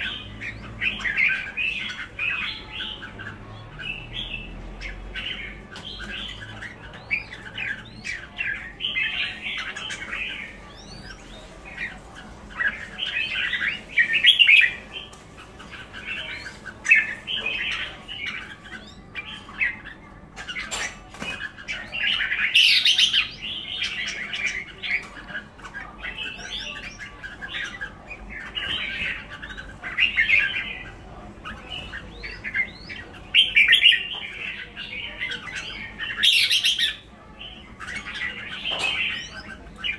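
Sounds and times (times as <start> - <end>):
birds chattering and warbling: 0.0 - 39.9.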